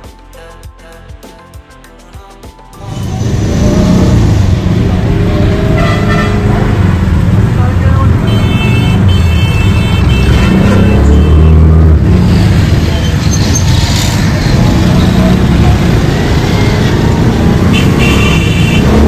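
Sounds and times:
road and traffic noise: 2.8s - 19.0s
auto-rickshaw engine running: 2.9s - 19.0s
vehicle horn: 5.5s - 6.9s, 8.2s - 11.8s, 17.7s - 19.0s.

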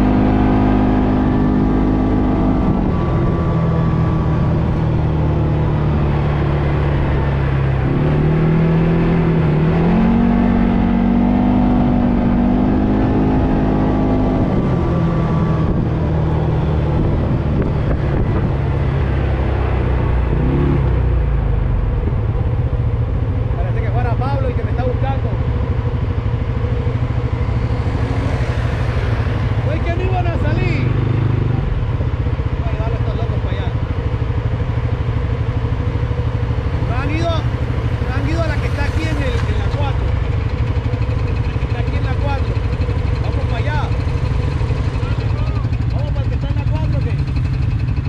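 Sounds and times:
wind rumbling on microphone: 0.0s - 22.4s
atv engine revving: 0.0s - 48.0s.

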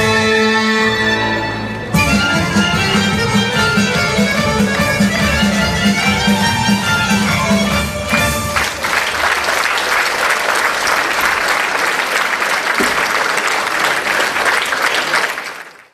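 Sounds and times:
folk dance music: 0.0s - 11.4s
audience applauding: 7.0s - 15.9s.

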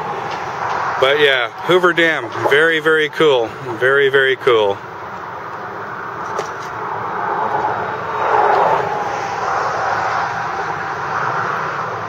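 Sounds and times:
road traffic rushing: 0.0s - 12.0s
vehicle passing by: 6.8s - 12.0s.

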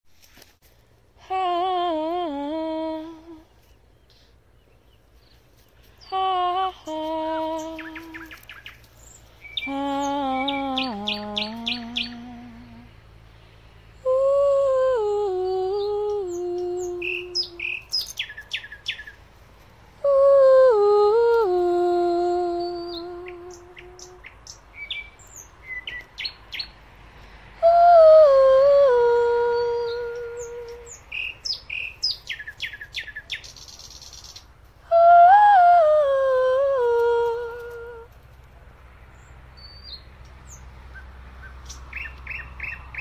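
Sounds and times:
woman singing wordless phrases: 1.2s - 3.7s, 6.0s - 8.5s, 9.6s - 13.0s, 14.0s - 18.2s, 20.0s - 24.4s, 27.6s - 31.1s, 34.8s - 38.1s
nightingale singing: 1.3s - 13.0s, 13.8s - 19.3s, 20.0s - 26.8s, 27.6s - 38.1s, 39.1s - 43.0s.

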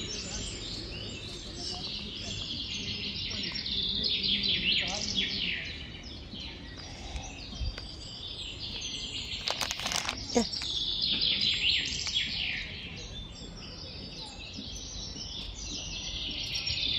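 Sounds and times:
small birds chirping: 0.0s - 16.9s.

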